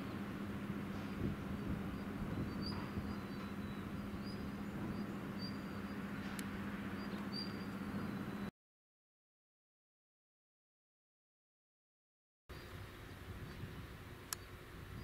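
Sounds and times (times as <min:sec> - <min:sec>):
low hum: 0:00.0 - 0:08.5
bird chirps: 0:01.0 - 0:08.5.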